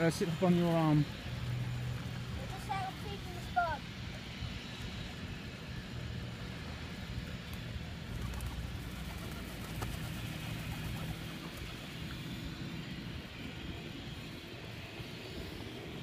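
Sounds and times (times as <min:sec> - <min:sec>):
pigeon wings flapping: 0:07.4 - 0:12.4.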